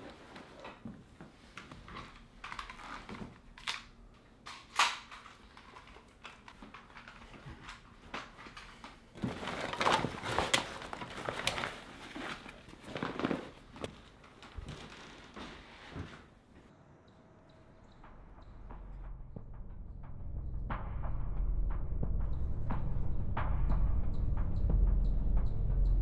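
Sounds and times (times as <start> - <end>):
rustling and crinkling: 0.0 - 3.9, 4.5 - 16.7.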